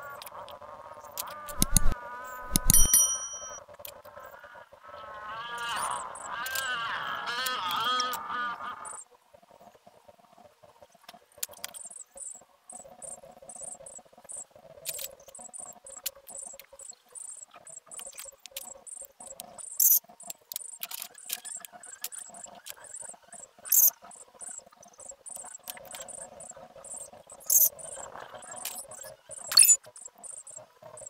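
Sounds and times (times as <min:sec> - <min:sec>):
faint steady hum: 0:00.0 - 0:20.8
marker squeaking on paper: 0:01.5 - 0:02.9
sharp scrapes: 0:01.5 - 0:03.6.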